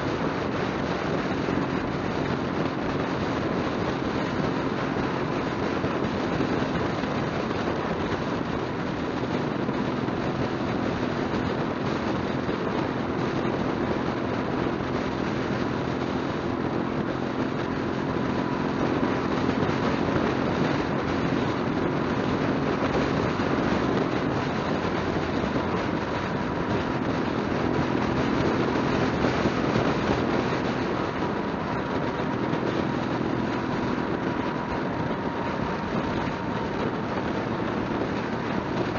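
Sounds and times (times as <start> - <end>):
low engine hum: 0.0 - 38.9
wind and road noise: 0.0 - 38.9.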